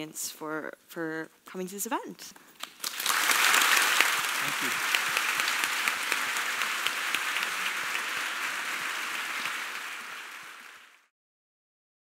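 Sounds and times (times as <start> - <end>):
audience applauding: 2.6 - 11.1.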